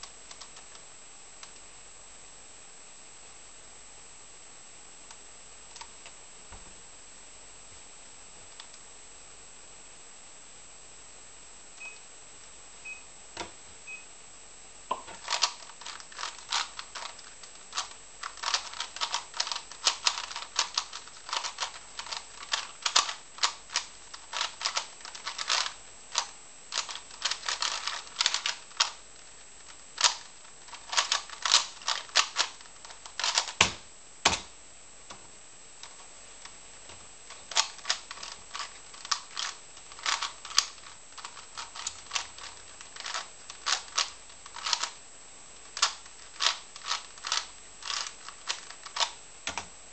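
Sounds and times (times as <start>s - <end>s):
puzzle cube plastic clicks: 0.0s - 0.8s, 14.9s - 34.5s, 37.3s - 45.0s, 45.6s - 49.7s
short beeps: 11.8s - 12.0s, 13.9s - 14.1s.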